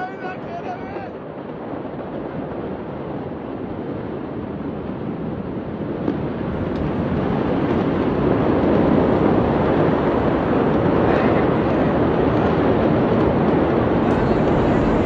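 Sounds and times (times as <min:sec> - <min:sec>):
outdoor rushing noise: 0:06.4 - 0:15.0.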